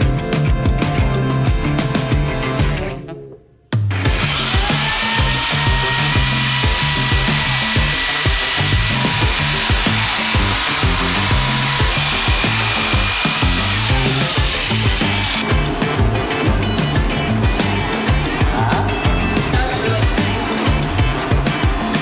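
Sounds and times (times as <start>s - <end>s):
background music with steady beat: 0.0s - 22.0s
jigsaw cutting wood: 4.1s - 16.6s.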